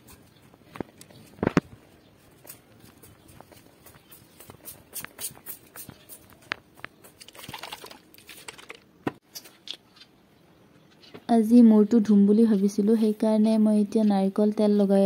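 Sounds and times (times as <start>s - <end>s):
plastic bottle rustle: 7.2s - 8.8s.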